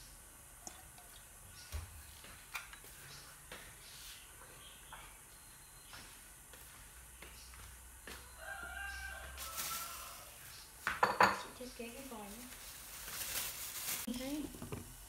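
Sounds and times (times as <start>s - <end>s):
dishes and utensils clinking: 10.9s - 11.6s.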